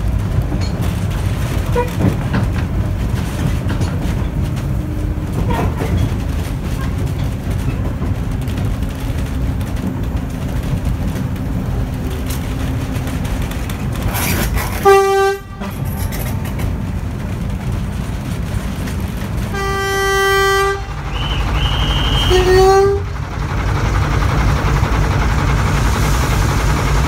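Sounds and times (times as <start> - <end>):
diesel locomotive rumbling: 0.0 - 27.0
locomotive horn blast: 1.7 - 2.0, 14.6 - 16.0, 19.5 - 23.2.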